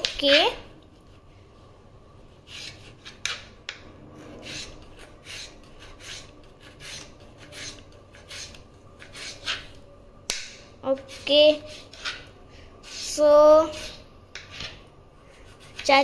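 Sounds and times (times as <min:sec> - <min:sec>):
knife slicing on cutting board: 0:11.0 - 0:14.8.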